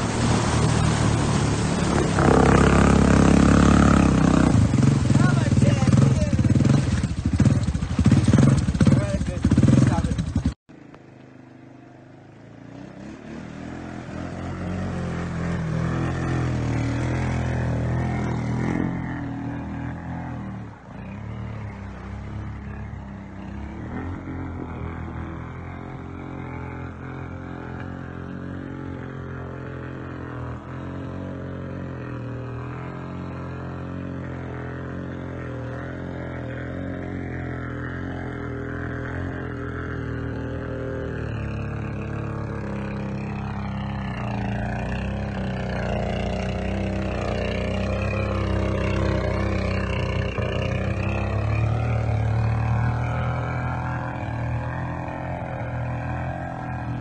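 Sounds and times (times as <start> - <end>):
atv engine running: 0.0 - 57.0.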